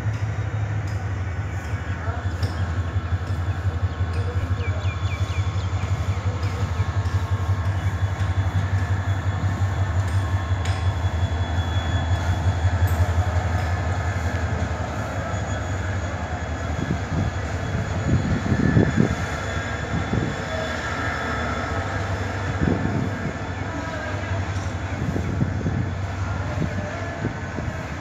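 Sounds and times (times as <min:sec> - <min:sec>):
diesel locomotive passing: 0:00.0 - 0:28.0
train wheels rumbling on track: 0:00.0 - 0:28.0.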